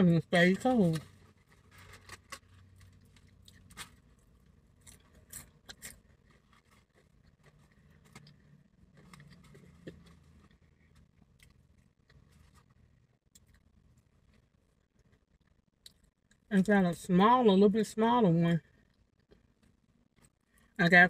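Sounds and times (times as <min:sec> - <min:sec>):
crispy chicken crackling: 0:00.5 - 0:14.0.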